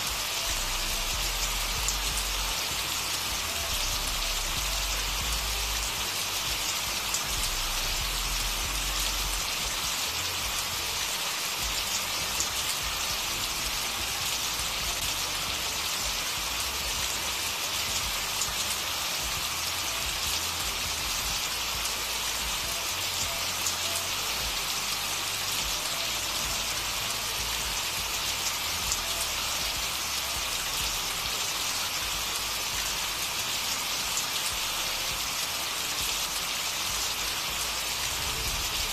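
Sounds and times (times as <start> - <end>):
steady rain: 0.0 - 38.9.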